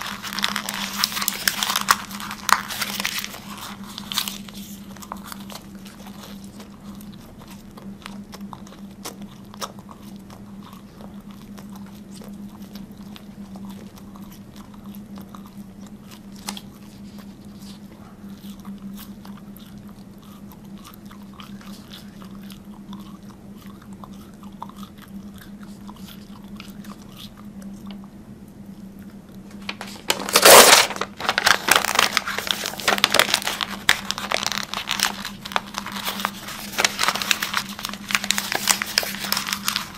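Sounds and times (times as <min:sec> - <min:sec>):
paper crumpling and rustling: 0:00.0 - 0:07.6, 0:16.3 - 0:17.9, 0:29.5 - 0:39.9
chewing and biting paper: 0:00.0 - 0:39.9
low steady hum: 0:00.0 - 0:39.9.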